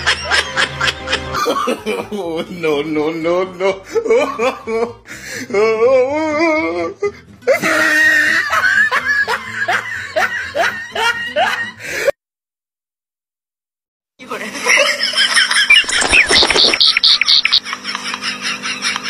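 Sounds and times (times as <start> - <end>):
music: 0.0 - 12.1.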